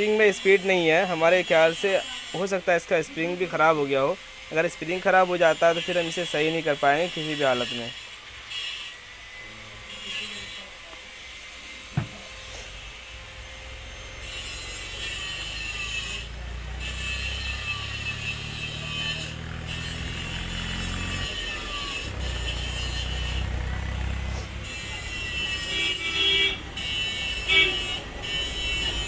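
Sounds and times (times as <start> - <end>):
hissing rasp: 4.7 - 9.0, 14.2 - 26.2
engine running steadily: 22.0 - 29.0.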